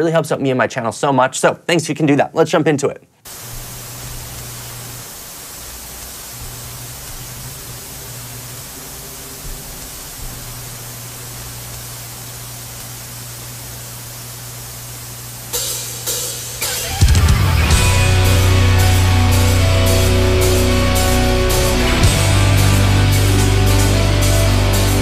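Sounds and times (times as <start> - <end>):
television static hiss: 0.0 - 25.0
low hum: 3.3 - 16.0, 16.6 - 25.0
drums: 5.8 - 12.9, 15.4 - 25.0.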